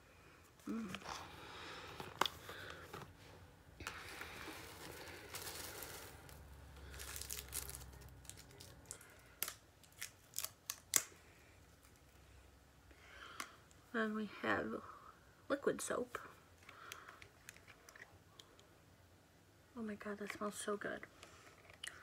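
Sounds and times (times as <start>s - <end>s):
packaging rustling and crinkling: 3.8s - 11.1s.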